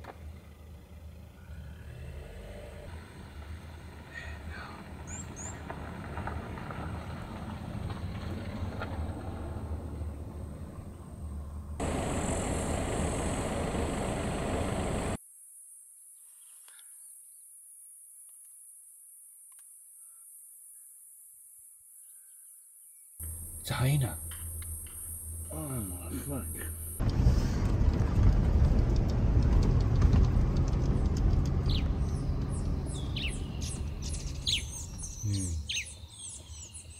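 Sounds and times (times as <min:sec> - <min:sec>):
car driving on road: 0:00.0 - 0:15.2, 0:23.2 - 0:35.2
vehicle engine rumbling: 0:00.0 - 0:15.2, 0:23.2 - 0:35.7
birds chirping: 0:04.2 - 0:05.6, 0:31.6 - 0:36.9.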